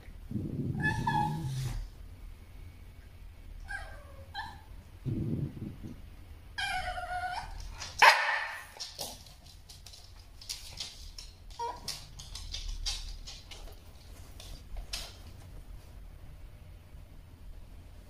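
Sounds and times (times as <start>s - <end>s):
dog growling: 0.3s - 1.9s
dog whining: 0.3s - 2.0s, 3.6s - 4.7s, 6.6s - 7.8s
dog barking: 8.0s - 8.7s.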